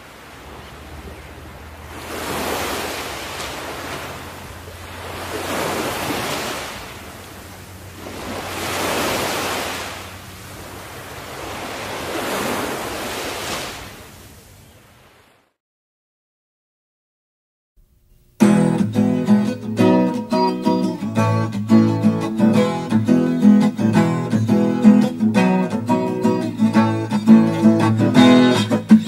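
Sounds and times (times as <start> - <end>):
ocean waves washing in: 0.0 - 15.6.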